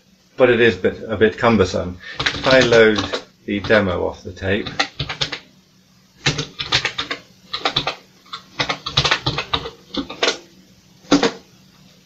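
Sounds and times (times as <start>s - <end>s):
keyboard keystrokes clicking: 2.2s - 3.8s, 4.6s - 5.4s, 6.2s - 10.4s.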